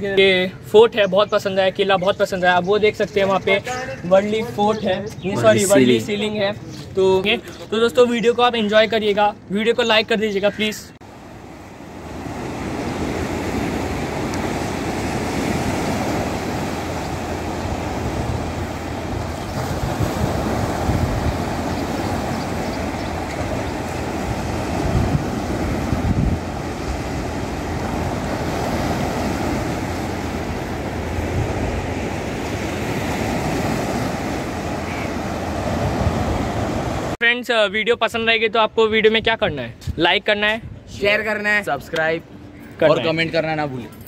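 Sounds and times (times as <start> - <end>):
wind buffeting microphone: 11.4 - 37.1
sea waves breaking on rocks: 11.9 - 37.2.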